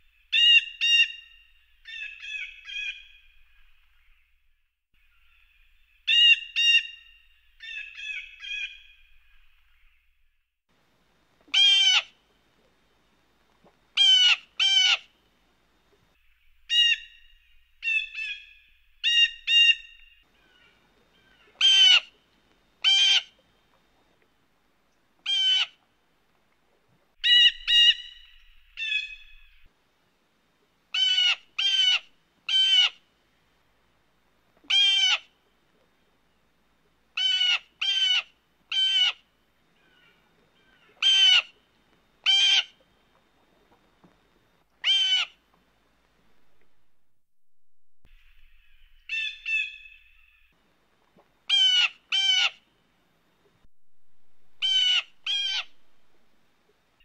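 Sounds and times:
blue jay calling: 0:00.3 - 0:03.1, 0:06.1 - 0:08.9, 0:11.5 - 0:12.1, 0:14.0 - 0:15.1, 0:16.7 - 0:17.2, 0:17.8 - 0:22.2, 0:25.2 - 0:25.8, 0:27.2 - 0:29.5, 0:31.0 - 0:33.0, 0:34.7 - 0:35.3, 0:37.2 - 0:39.2, 0:39.8 - 0:41.6, 0:42.2 - 0:42.8, 0:44.8 - 0:45.4, 0:48.4 - 0:50.4, 0:51.5 - 0:52.6, 0:54.6 - 0:55.8.

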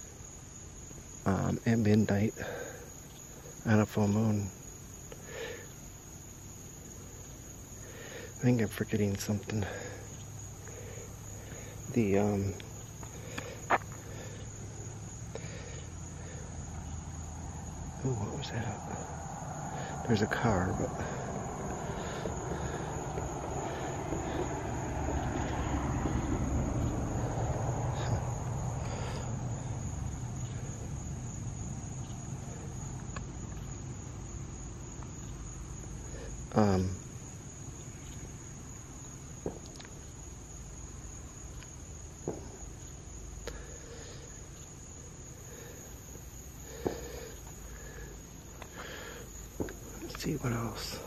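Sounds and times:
crickets trilling: 0:00.0 - 0:51.0
car driving past: 0:15.9 - 0:34.7.

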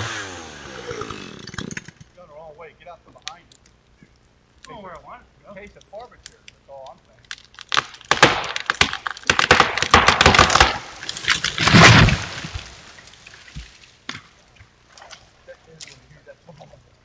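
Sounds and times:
tree trunk cracking and splintering: 0:07.1 - 0:14.2
tree crashing to the ground: 0:07.3 - 0:14.2.

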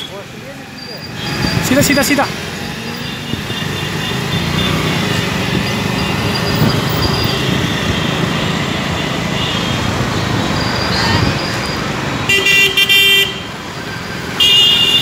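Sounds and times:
surrounding traffic: 0:00.0 - 0:15.0
wind noise on microphone: 0:01.1 - 0:02.0, 0:03.2 - 0:03.8, 0:05.0 - 0:08.3, 0:10.9 - 0:11.6.

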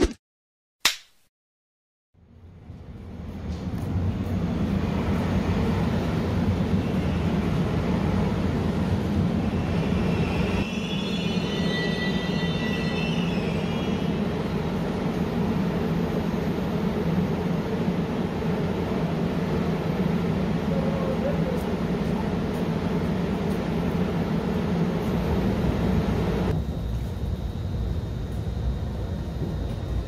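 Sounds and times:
train low rumble: 0:02.2 - 0:30.0
high wavering squealing: 0:09.5 - 0:14.3.

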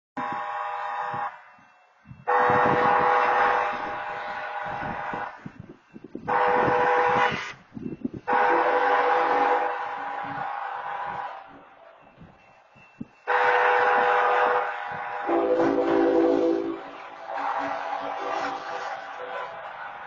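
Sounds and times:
train horn blasts: 0:00.2 - 0:01.5, 0:02.2 - 0:05.6, 0:06.3 - 0:07.6, 0:08.3 - 0:11.4, 0:13.2 - 0:19.7.

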